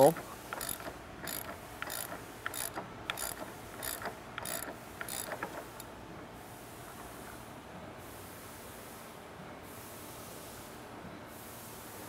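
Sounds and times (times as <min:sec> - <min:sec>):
ratchet wrench clicking: 0:00.0 - 0:05.9.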